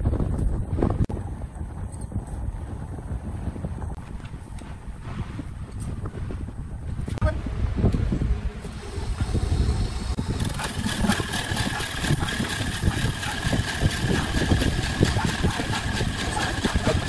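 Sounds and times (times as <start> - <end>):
lathe motor hum: 8.6 - 17.0.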